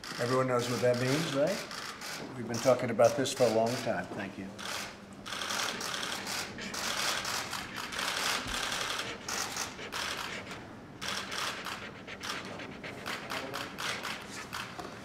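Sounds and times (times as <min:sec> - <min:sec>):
camera shutters clicking: 0:04.6 - 0:10.3, 0:13.3 - 0:14.7.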